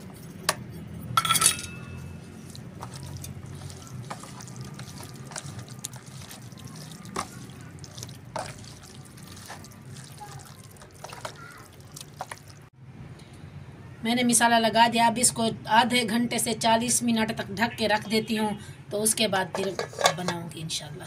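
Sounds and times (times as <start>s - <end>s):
wet squelching of marinade: 1.9s - 12.8s.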